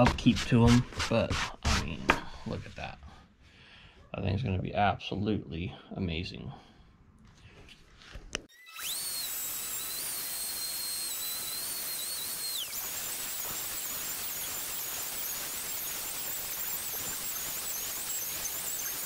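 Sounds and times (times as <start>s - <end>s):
router bit cutting wood hiss: 8.5s - 19.0s
router whining: 8.5s - 19.0s.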